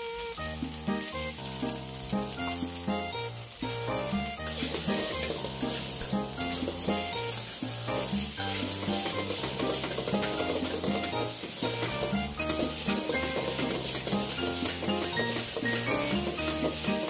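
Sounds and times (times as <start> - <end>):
background music: 0.0 - 17.0
rice sizzling in a wok: 0.0 - 17.0
metal spatula stirring in wok: 3.8 - 17.0.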